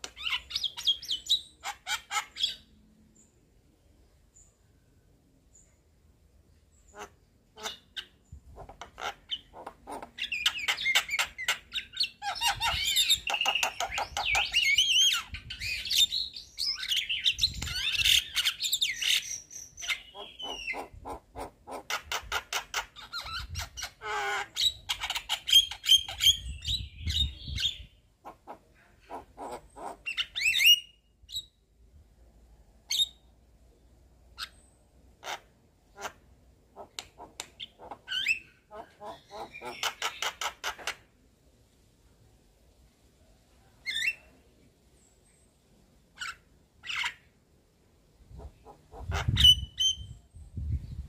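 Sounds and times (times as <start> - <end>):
bird singing varied chatter: 0.0 - 3.4, 6.5 - 21.3.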